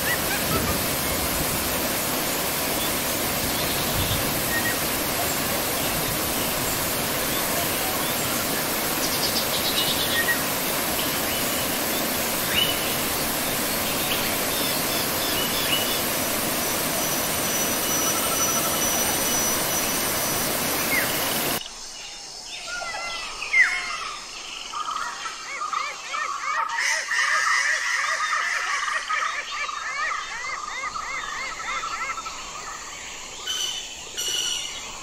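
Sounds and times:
birds chirping: 0.0 - 21.6
waterfall rushing: 0.0 - 21.6.

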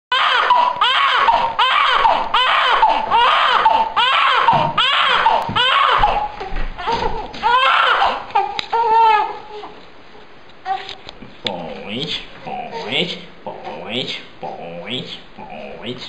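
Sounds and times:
newborn baby crying: 0.1 - 9.8.

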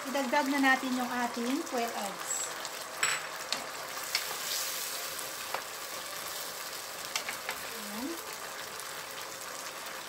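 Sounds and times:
sauce sizzling in a wok: 0.0 - 10.0.

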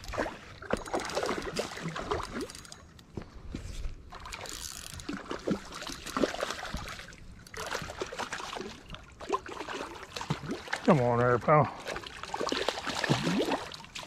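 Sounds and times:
water splashing and gurgling: 0.0 - 2.9, 4.1 - 14.0
fishing gear knocking and rustling: 0.0 - 8.1.

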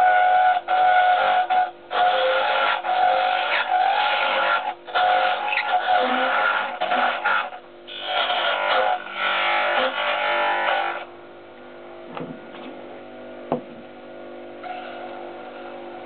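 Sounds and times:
wood lathe running: 0.0 - 11.1
sharp knocks: 12.1 - 12.5, 13.5 - 13.8.

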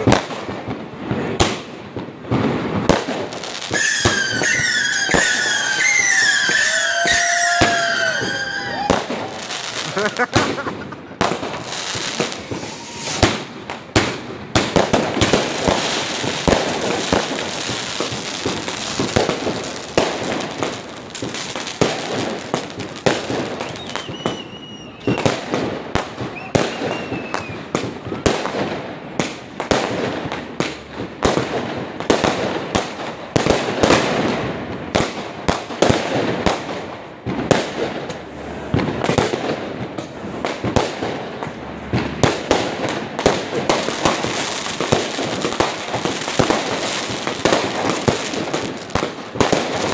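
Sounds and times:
fireworks bangs and crackling: 0.0 - 49.9
thin firework whistles: 3.5 - 10.6, 11.5 - 13.4, 15.5 - 25.4, 26.2 - 28.2.

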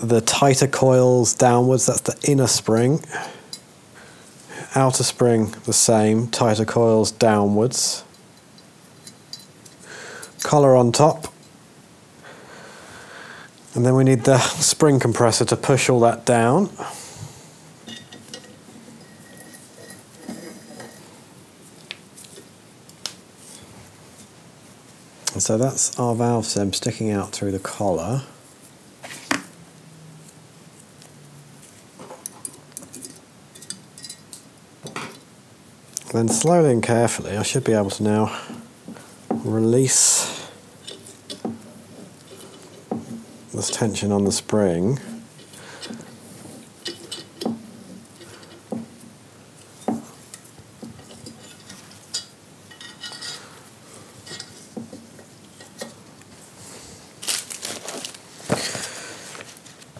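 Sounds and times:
light metal clicks and clinks: 8.1 - 10.5, 32.2 - 35.3.

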